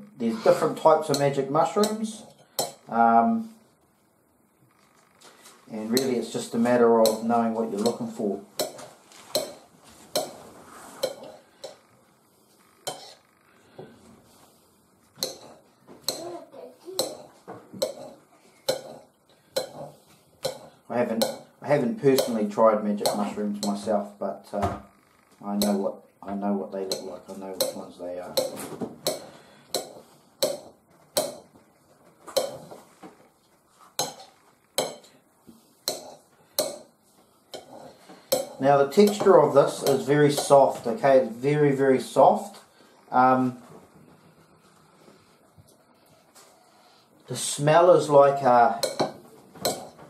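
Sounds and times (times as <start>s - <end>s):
knife chopping mushrooms: 22.2s - 23.8s, 38.3s - 40.6s.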